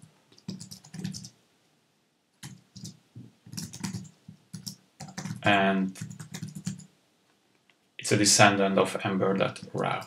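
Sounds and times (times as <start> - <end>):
keyboard typing: 0.3 - 1.3, 2.4 - 6.9.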